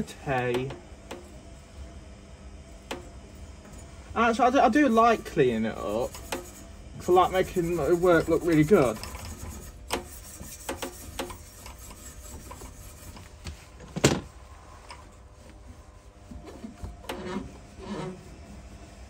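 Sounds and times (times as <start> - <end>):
rubbing and scraping on pipe: 4.7 - 13.7, 14.6 - 19.0.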